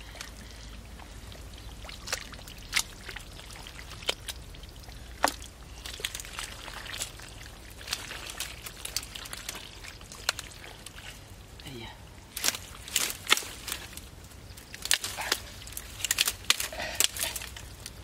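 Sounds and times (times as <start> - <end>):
hands sloshing through muddy water: 0.0 - 18.0
small splashes: 0.0 - 18.0
water trickling and dripping: 0.0 - 18.0.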